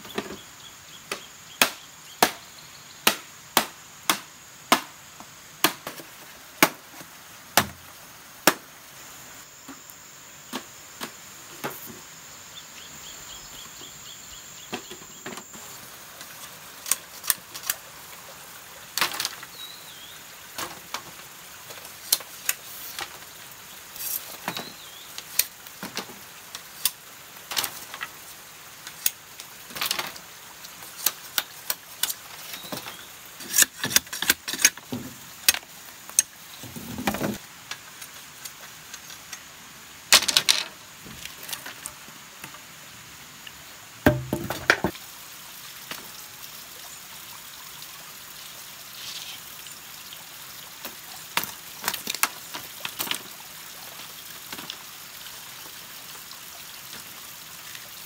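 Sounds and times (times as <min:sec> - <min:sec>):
bamboo being chopped: 0:01.1 - 0:07.0, 0:07.6 - 0:07.8, 0:08.4 - 0:08.6, 0:44.1 - 0:45.0.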